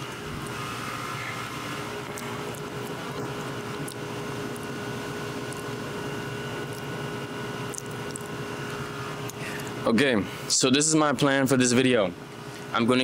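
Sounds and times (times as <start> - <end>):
mechanical hum with held tone: 0.0 - 13.0.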